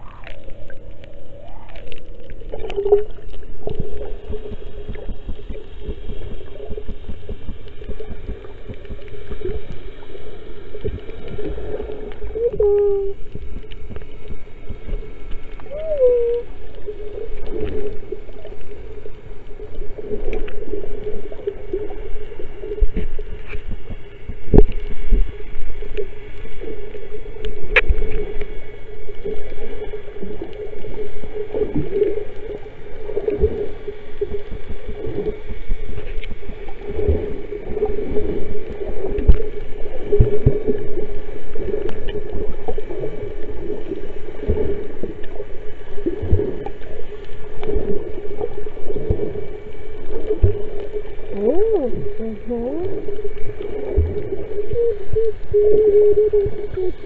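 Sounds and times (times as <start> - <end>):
steady underwater hum: 0.0 - 57.0
water gurgling underwater: 0.0 - 57.0
underwater clicks: 20.2 - 20.7, 22.7 - 26.4, 27.4 - 28.5.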